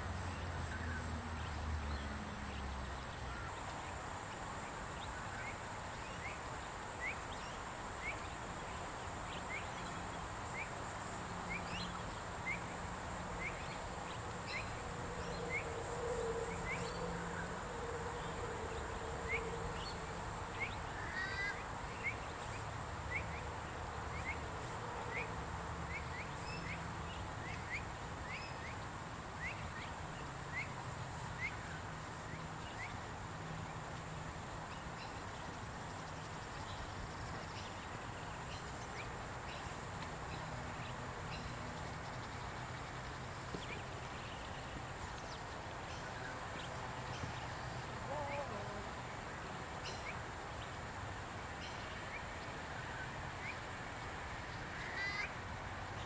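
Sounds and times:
outdoor background noise: 0:00.0 - 0:56.0.

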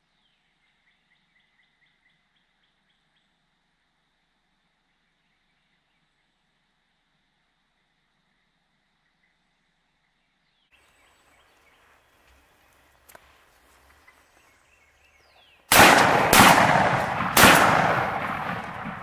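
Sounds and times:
shotgun blasts echoing: 0:15.7 - 0:19.0.

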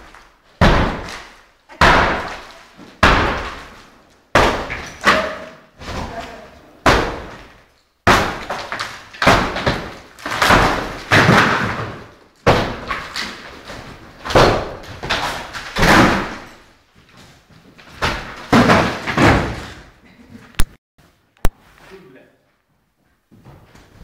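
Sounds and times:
wallboard smashing blows and cracks: 0:00.0 - 0:16.8, 0:17.8 - 0:20.0.

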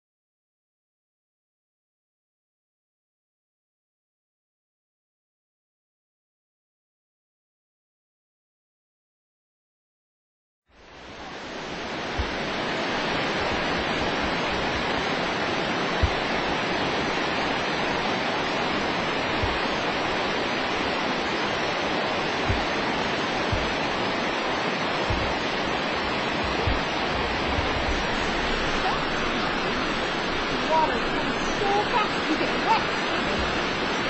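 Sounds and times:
waterfall rushing: 0:10.8 - 0:34.0
low thumps: 0:11.9 - 0:17.6, 0:18.8 - 0:21.0, 0:22.4 - 0:24.3, 0:25.0 - 0:34.0.

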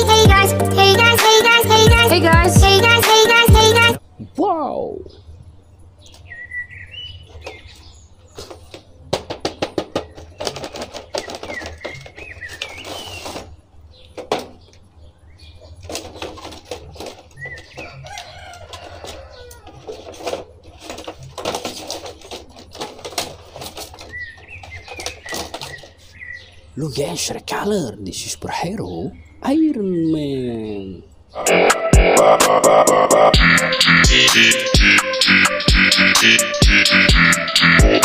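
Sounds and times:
birds calling: 0:02.4 - 0:38.0
plastic packaging crackling: 0:10.0 - 0:13.6, 0:15.8 - 0:26.2.

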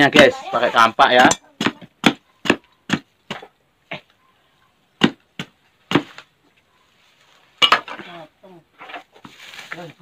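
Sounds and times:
axe chopping fruit: 0:01.1 - 0:03.5, 0:05.0 - 0:06.2.

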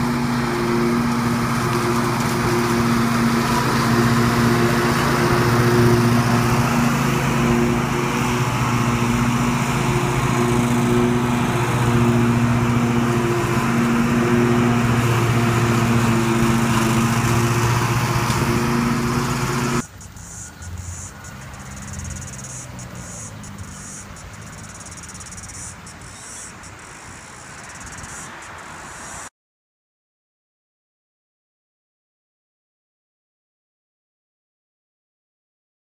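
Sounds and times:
ride-on mower engine hum: 0:00.0 - 0:29.3
faint high chirps: 0:19.8 - 0:29.3.

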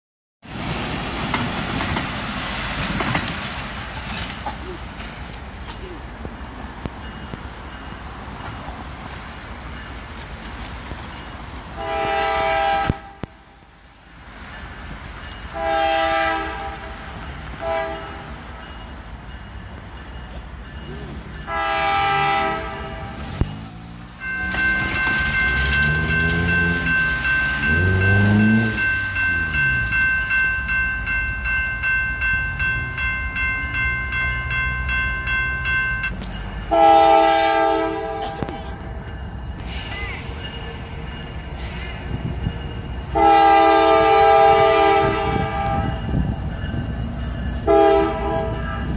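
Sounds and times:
train rumble: 0:00.4 - 0:48.9
crossing warning bell ringing: 0:05.6 - 0:13.7, 0:14.4 - 0:48.9
locomotive air horn blasts: 0:11.8 - 0:13.4, 0:15.5 - 0:18.3, 0:21.5 - 0:23.4, 0:24.5 - 0:29.3, 0:36.7 - 0:38.8, 0:43.1 - 0:46.0, 0:47.6 - 0:48.9.

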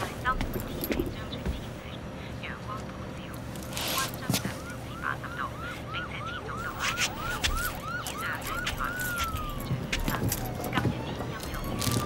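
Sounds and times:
siren yelping: 0:03.9 - 0:12.0.

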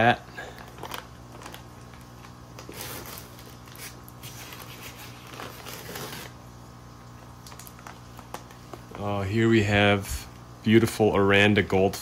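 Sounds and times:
steady low hum: 0:00.0 - 0:12.0
plastic bag rustling: 0:00.4 - 0:06.4.

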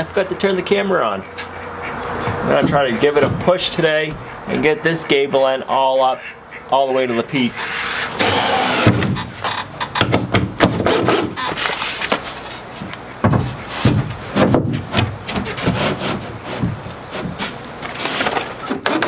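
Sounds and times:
board scraping along wood: 0:07.4 - 0:19.0
wooden boards knocking: 0:08.8 - 0:12.2, 0:12.8 - 0:17.6.

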